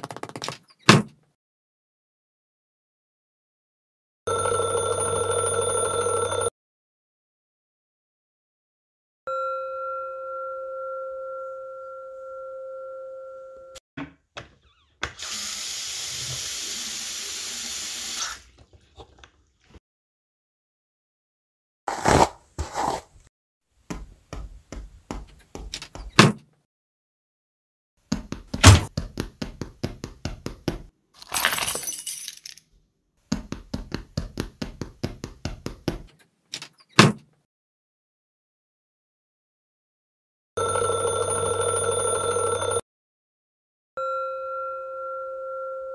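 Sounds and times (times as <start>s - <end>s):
bell-like ringing tone: 9.3s - 13.8s, 44.0s - 45.9s
water running from a tap: 15.2s - 18.4s
door banging shut: 28.6s - 28.9s.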